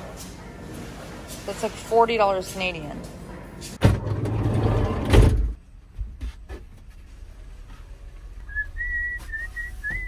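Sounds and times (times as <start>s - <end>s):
person whistling a tune: 8.4s - 10.0s.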